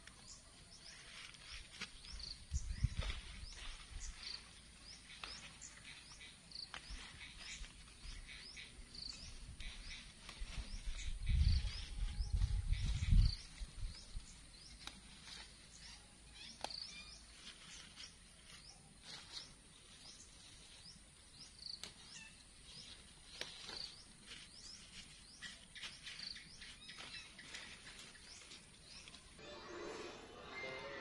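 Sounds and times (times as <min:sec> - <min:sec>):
small birds chirping: 0:00.0 - 0:29.4
leaf stems snapping: 0:05.0 - 0:05.8, 0:14.7 - 0:15.4, 0:16.5 - 0:17.0, 0:21.8 - 0:22.1, 0:23.2 - 0:24.0.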